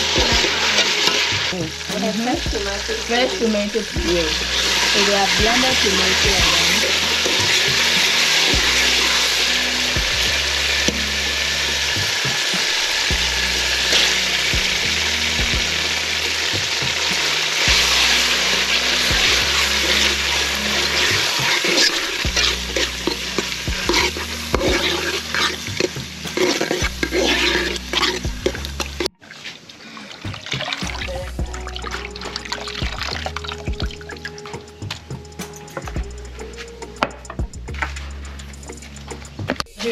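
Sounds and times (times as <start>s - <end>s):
puree sizzling in oil: 0.0s - 37.0s
metal spoon clinking and scraping pan: 17.1s - 29.1s.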